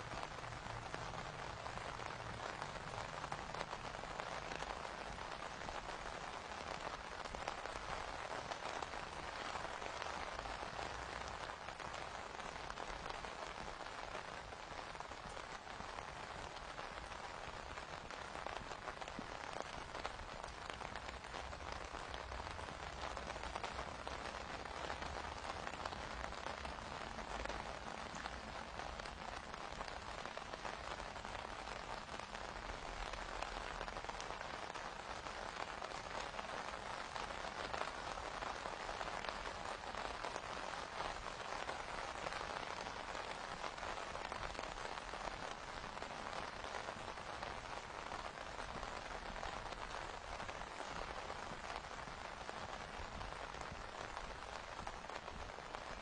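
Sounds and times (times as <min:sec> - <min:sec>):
steady rain falling: 0:00.0 - 0:56.0.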